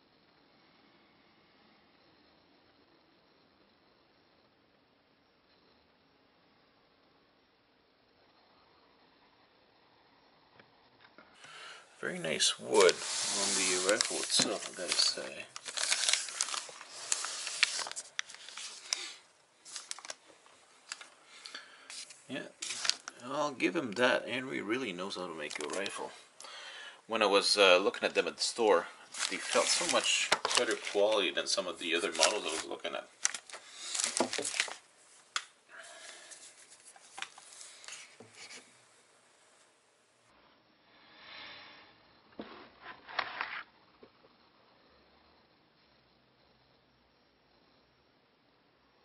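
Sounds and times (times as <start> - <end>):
soft rustling handling noise: 12.0 - 26.4, 27.8 - 38.9
rubbing on crumpled paper: 12.2 - 20.2, 21.9 - 23.6, 25.1 - 26.1, 28.2 - 34.8, 36.0 - 38.7.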